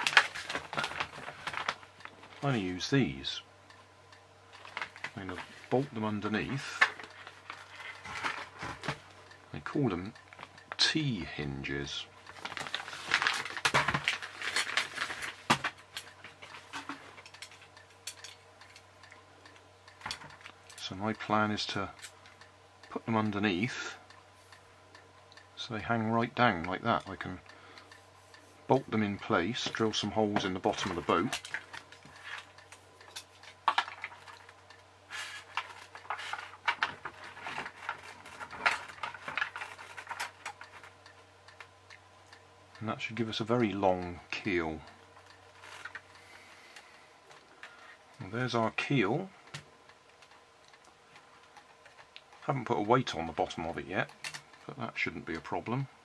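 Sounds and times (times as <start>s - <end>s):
packaging rustling: 0.0s - 2.4s, 12.3s - 15.8s.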